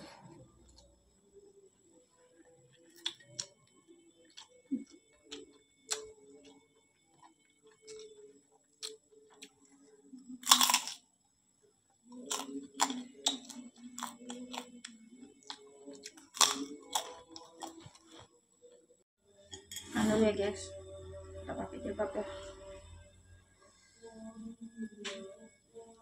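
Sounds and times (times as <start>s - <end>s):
person chewing crunchy crackers: 2.4s - 11.1s, 12.0s - 18.7s.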